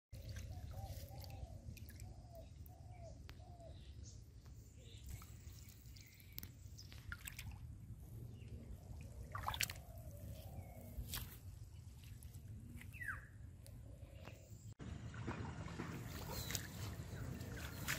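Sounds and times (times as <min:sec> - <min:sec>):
water drips and splashes: 0:00.1 - 0:02.7, 0:05.0 - 0:08.2, 0:08.8 - 0:10.4, 0:14.8 - 0:17.9.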